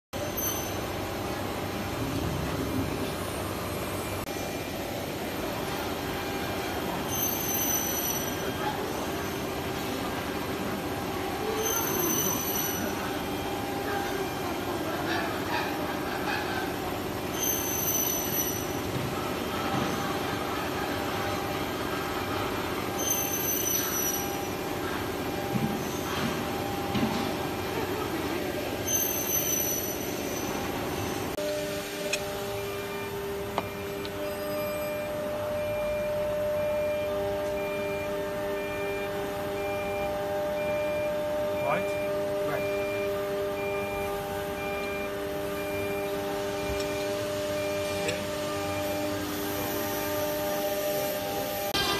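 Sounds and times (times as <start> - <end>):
machinery hum: 0.2 - 51.9
thin high squealing tones: 7.1 - 9.5, 11.4 - 13.4, 17.3 - 18.9, 23.0 - 24.6, 28.8 - 31.4, 34.2 - 36.2.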